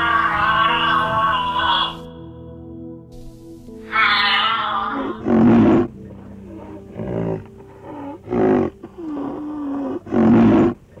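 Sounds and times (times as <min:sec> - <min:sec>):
rhinoceros bellowing: 0:03.9 - 0:11.0
rhinoceros moaning: 0:03.9 - 0:11.0.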